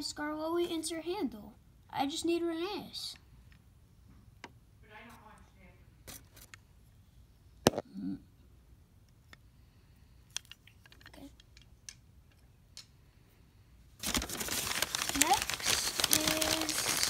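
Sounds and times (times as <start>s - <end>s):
packing paper rustling: 14.0s - 17.0s.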